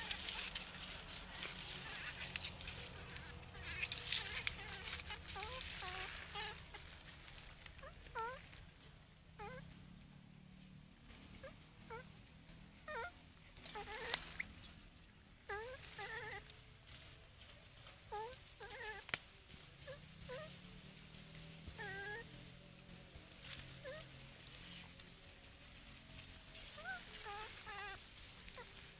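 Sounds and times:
baby monkey cooing: 0.0 - 8.6, 9.4 - 9.6, 12.9 - 14.7, 15.4 - 16.5, 18.1 - 19.2, 21.8 - 22.4, 23.8 - 25.0, 26.6 - 28.9.

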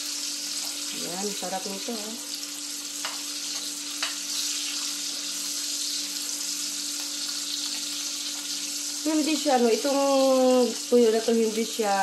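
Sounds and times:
fish sizzling in oil: 0.0 - 12.0.

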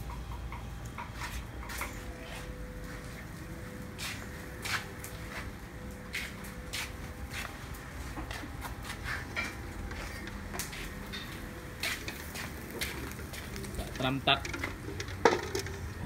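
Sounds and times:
low background hum: 0.0 - 16.0
footsteps on a tiled floor: 3.9 - 13.7.

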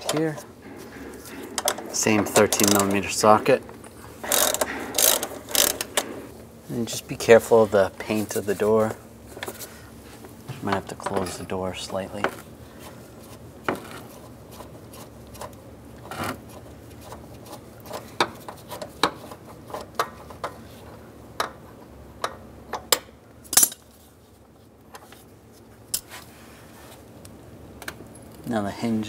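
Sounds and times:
ratchet clinking on metal: 0.0 - 6.3.

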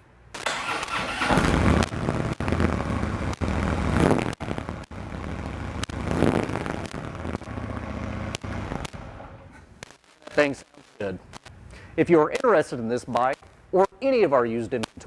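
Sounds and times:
motorcycle engine revving: 0.5 - 9.5.

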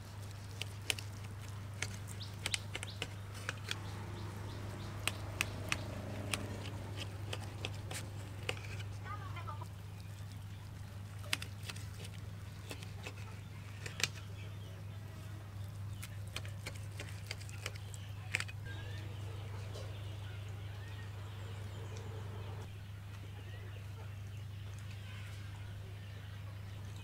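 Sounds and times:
steady low hum: 0.0 - 27.0
knife cutting meat: 0.2 - 3.8, 4.8 - 8.9.

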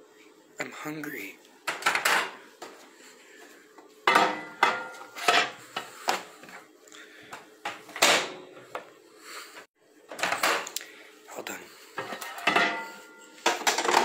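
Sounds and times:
microwave door opening and shutting: 7.7 - 8.6.

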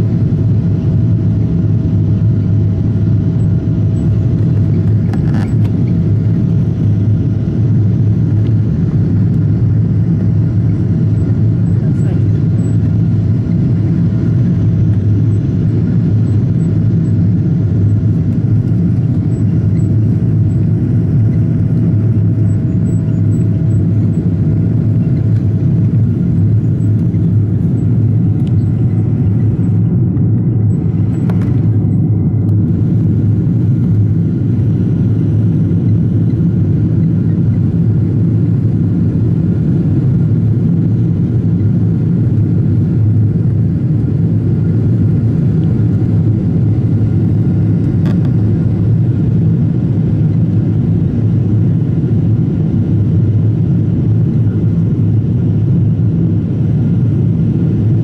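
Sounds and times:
airplane cabin engine drone: 0.0 - 58.0.

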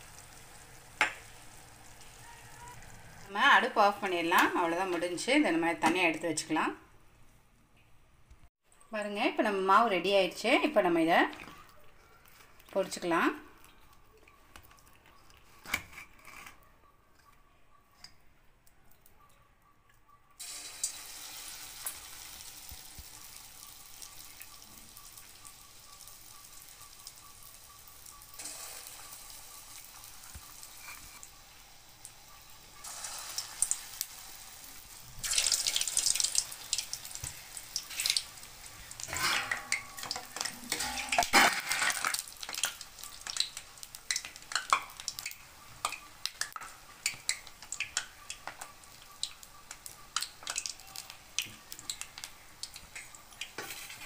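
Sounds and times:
batter deep-frying in oil: 0.0 - 6.8, 8.9 - 16.1, 20.4 - 54.0
metal spoon scraping a pan: 15.6 - 17.3, 30.7 - 31.2, 39.0 - 42.7, 53.6 - 54.0.

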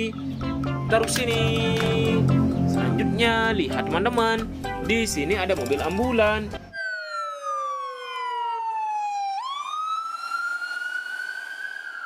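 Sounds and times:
ambulance siren wailing: 6.6 - 12.0.

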